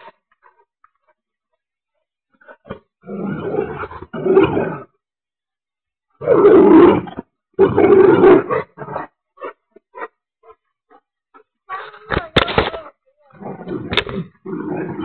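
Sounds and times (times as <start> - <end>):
dog growling: 13.3 - 15.0.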